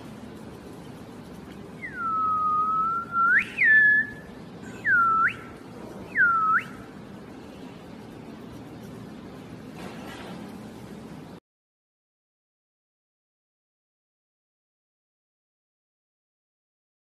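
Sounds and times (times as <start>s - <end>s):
person whistling: 1.8s - 5.5s, 6.1s - 6.8s.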